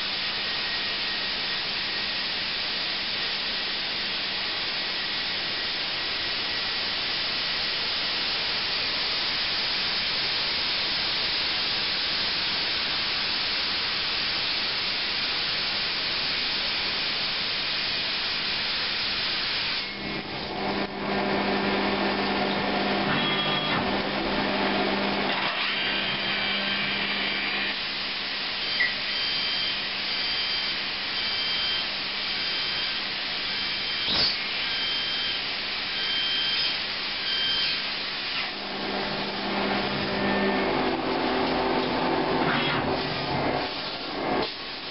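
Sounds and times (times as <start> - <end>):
lathe machine hum and whine: 0.0 - 44.9
coolant spray hiss: 3.4 - 19.9, 43.0 - 44.9.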